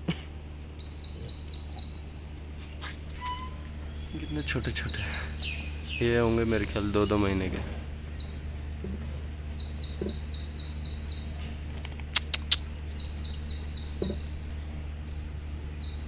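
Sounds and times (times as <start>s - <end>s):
low steady hum: 0.0s - 16.0s
bird chirping: 0.7s - 2.3s, 3.2s - 7.4s, 8.0s - 8.5s, 9.4s - 11.4s, 12.1s - 14.4s, 15.4s - 16.0s
sharp clicks: 11.8s - 12.7s.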